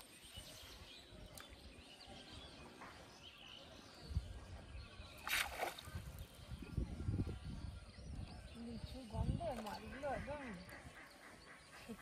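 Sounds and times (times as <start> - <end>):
faint birds chirping: 0.0 - 12.0
wind rumble on microphone: 3.9 - 10.4.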